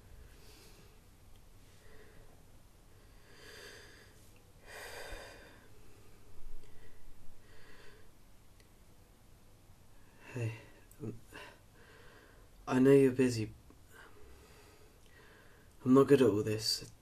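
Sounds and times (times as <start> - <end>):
person breathing: 0.1 - 8.2, 10.0 - 12.6, 13.9 - 15.8.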